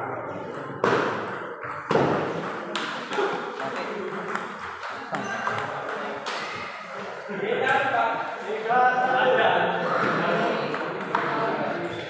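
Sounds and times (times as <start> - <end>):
table tennis ball hits: 0.5 - 6.6, 10.0 - 12.0.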